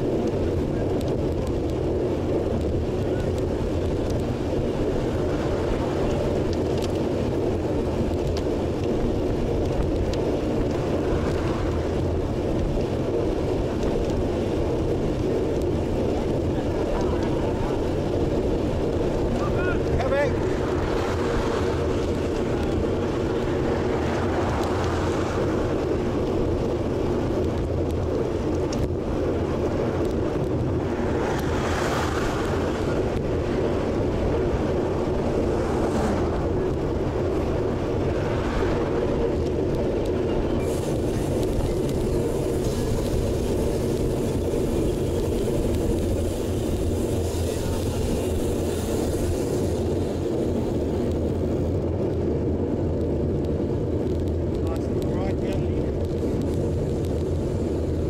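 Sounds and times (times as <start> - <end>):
motor vehicles passing: 0.0 - 58.0
wind and road rush: 0.0 - 58.0.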